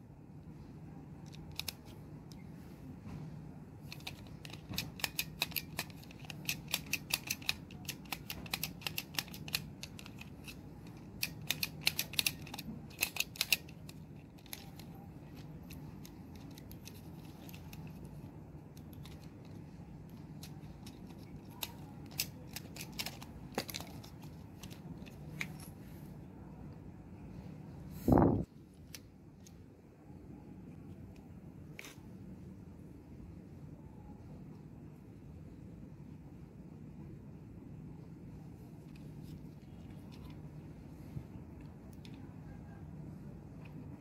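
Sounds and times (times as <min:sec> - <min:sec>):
screwdriver clicking on plastic: 0:01.3 - 0:02.4, 0:03.8 - 0:18.0, 0:18.8 - 0:25.7.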